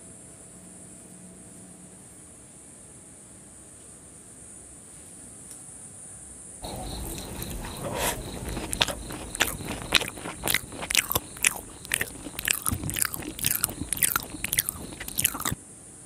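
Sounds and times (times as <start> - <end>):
chewing: 6.6 - 15.6
crunchy biting: 6.6 - 15.6.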